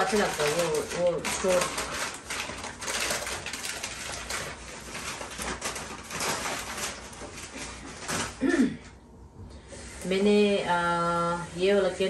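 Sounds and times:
wrapping paper rustling: 0:00.0 - 0:08.6.

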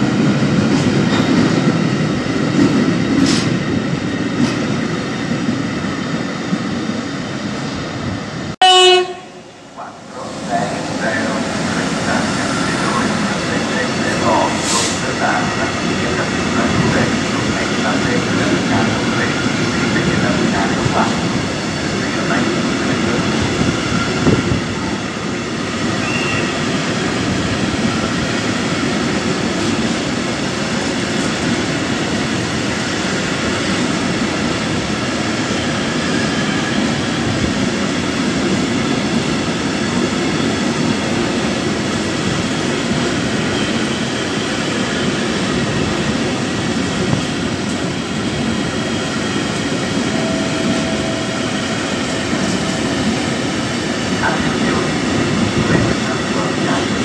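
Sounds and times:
freight train wheels rumbling on rails: 0:00.0 - 0:57.0.

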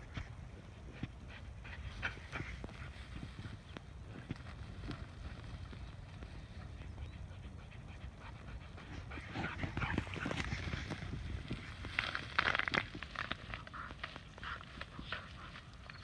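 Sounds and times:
dog panting: 0:06.6 - 0:10.8.

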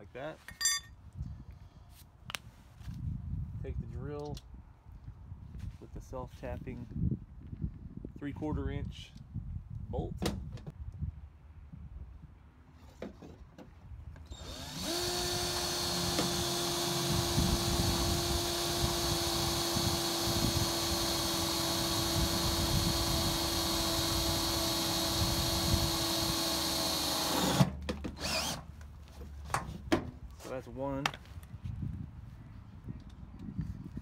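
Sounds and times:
cordless drill driving screw: 0:14.3 - 0:28.6.

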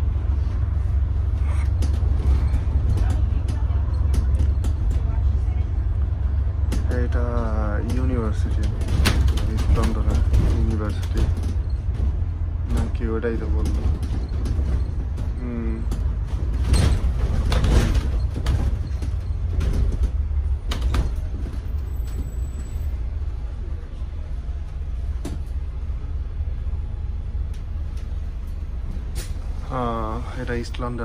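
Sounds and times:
bus engine and road rumble: 0:00.0 - 0:31.0
sharp rattles and knocks: 0:01.6 - 0:05.4, 0:07.8 - 0:22.4.

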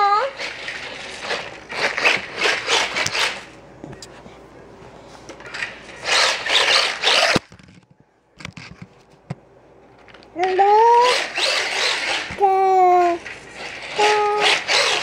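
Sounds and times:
toy car tyres skidding on floor: 0:00.4 - 0:03.5, 0:06.0 - 0:07.5, 0:11.1 - 0:12.4, 0:13.5 - 0:15.0.

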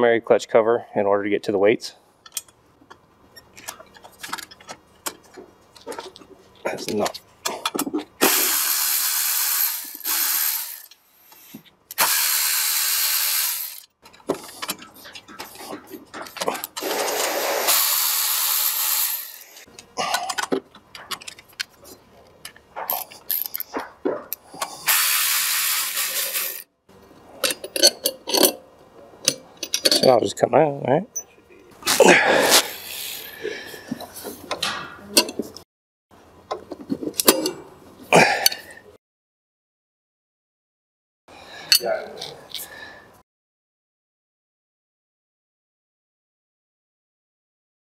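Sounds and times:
electric ratchet spinning bolts: 0:08.2 - 0:13.9, 0:16.6 - 0:19.7, 0:24.8 - 0:26.7.

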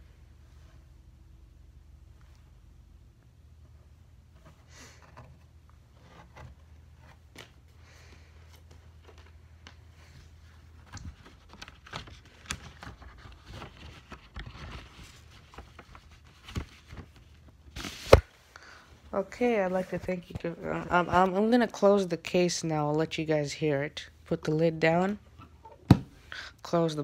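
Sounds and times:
vinyl record handling rustle: 0:03.6 - 0:18.5, 0:19.1 - 0:22.4.

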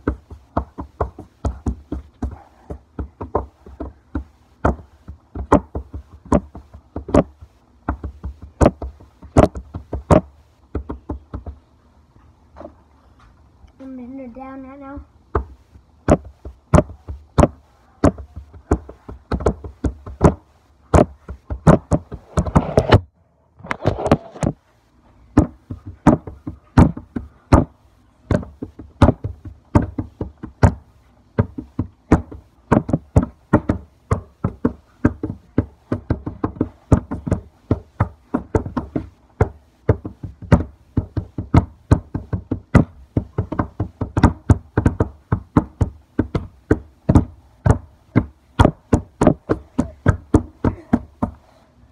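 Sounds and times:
child banging on hard surface: 0:48.2 - 0:51.4.

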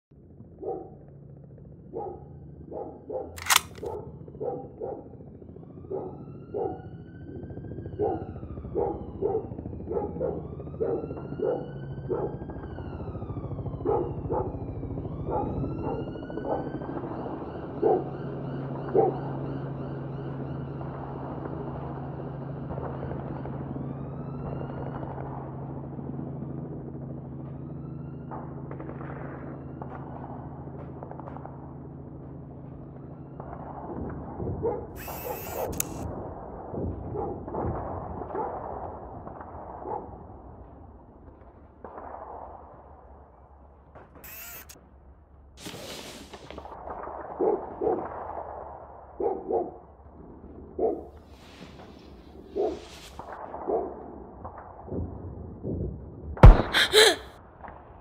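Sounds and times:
dog barking: 0:00.6 - 0:00.9, 0:01.9 - 0:03.3, 0:03.9 - 0:05.0
sharp click: 0:03.4 - 0:03.9, 0:35.0 - 0:36.0, 0:44.3 - 0:44.8, 0:56.4 - 0:57.2
distant siren wailing: 0:05.6 - 0:25.3.

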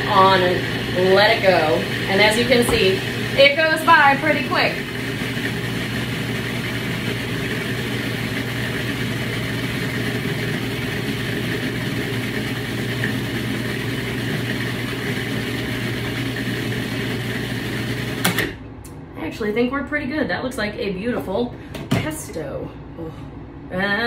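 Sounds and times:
food processor motor humming: 0:00.0 - 0:18.6.

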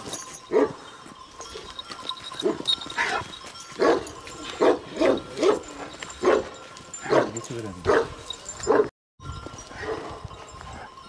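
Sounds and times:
dog barking: 0:00.5 - 0:00.8, 0:03.8 - 0:08.9.

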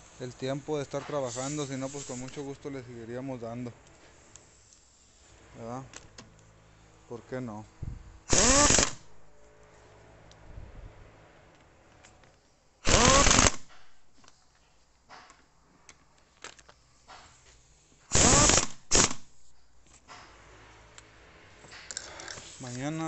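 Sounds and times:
impact wrench whining and hammering: 0:07.8 - 0:09.2, 0:12.8 - 0:14.2, 0:17.1 - 0:20.4.

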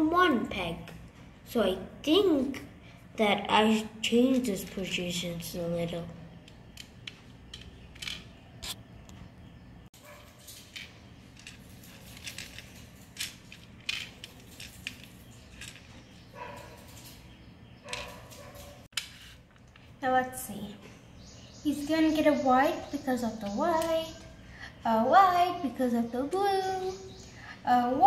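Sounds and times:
plastic pegs clicking: 0:06.4 - 0:08.8.

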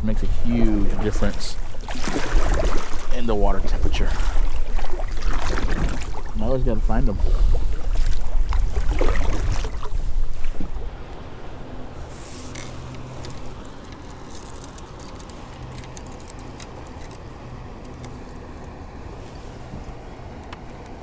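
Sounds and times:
small metallic clicks and rattles: 0:12.5 - 0:19.0.

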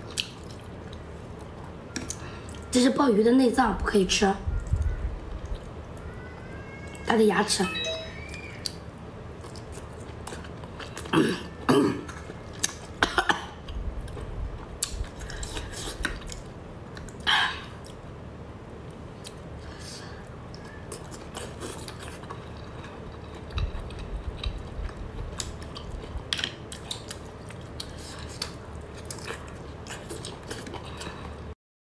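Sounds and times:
eating sounds: 0:19.2 - 0:31.5.

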